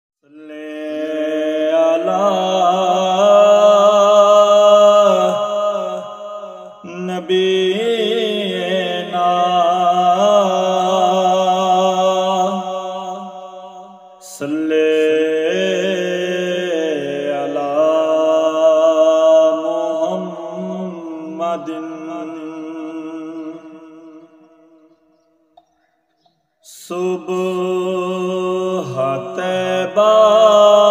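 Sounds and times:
man chanting: 0.2 - 13.6, 14.2 - 25.1, 26.6 - 30.9.

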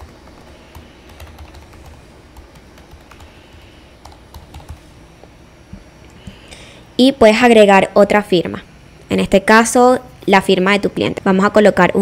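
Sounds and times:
computer keyboard typing: 0.0 - 4.8.

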